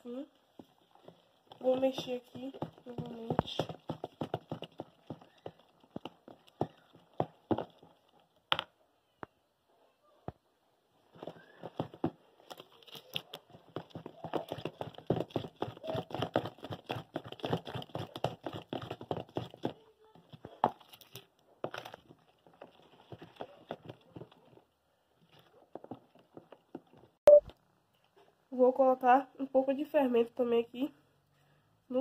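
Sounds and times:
spatula stirring cake batter: 0.0s - 8.5s, 11.0s - 27.2s.

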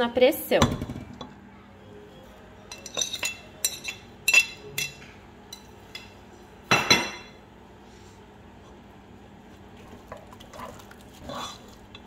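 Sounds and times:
metal cookware clinking: 2.7s - 7.4s.

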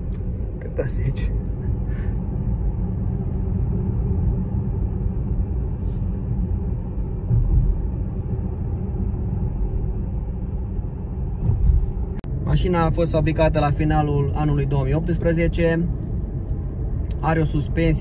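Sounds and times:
tyre and road noise in car cabin: 0.0s - 18.0s.

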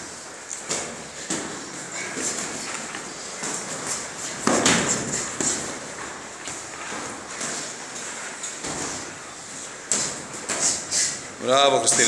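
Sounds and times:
boxing gloves thudding: 0.6s - 7.8s.

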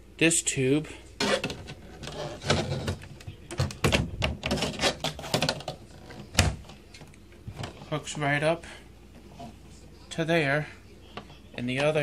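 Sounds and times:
plastic hose rubbing and knocking: 1.2s - 6.8s.

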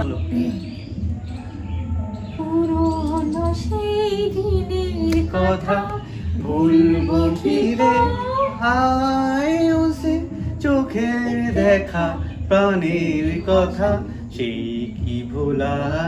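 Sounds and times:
woman singing unaccompanied: 2.2s - 16.0s
singer breathing: 6.0s - 6.4s.

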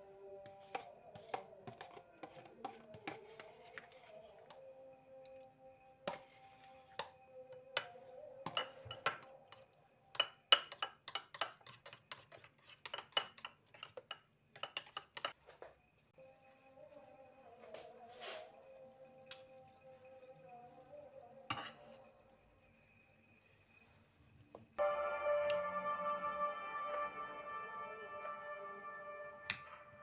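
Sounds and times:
soft background music: 0.0s - 10.6s, 16.1s - 24.0s, 24.8s - 30.0s
metal spoon clinking in bowl: 8.5s - 15.4s.

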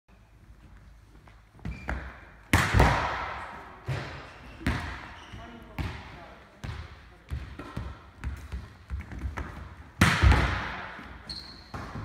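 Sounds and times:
shoe squeak: 1.6s - 2.0s, 4.3s - 5.6s, 11.2s - 12.0s.

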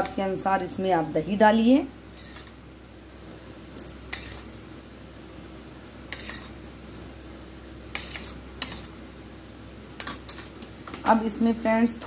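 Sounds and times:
faint steady hum: 0.0s - 12.0s
spoon scraping a plate: 2.1s - 2.6s, 4.1s - 4.6s, 6.1s - 6.6s, 7.9s - 9.0s.

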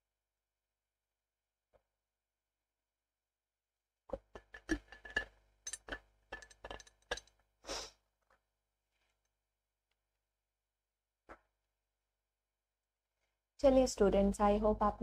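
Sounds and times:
short hiss: 7.7s - 7.9s.

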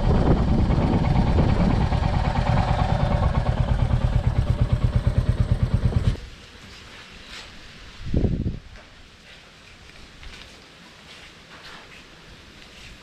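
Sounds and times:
motorcycle engine thumping: 0.0s - 6.3s.

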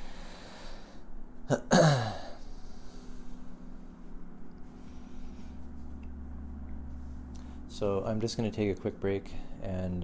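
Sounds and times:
steady low hum: 0.0s - 10.0s
man clearing throat: 1.5s - 2.4s.

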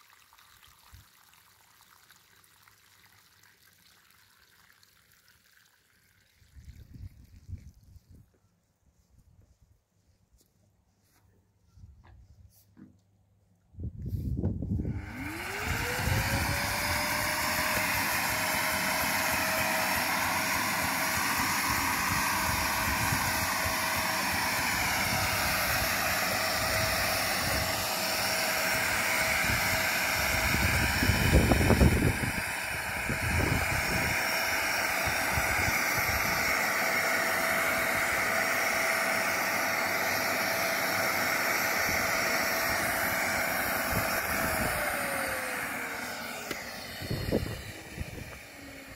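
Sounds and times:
pond vacuum motor whining: 14.7s - 48.9s
water hissing through hose: 41.0s - 48.9s.

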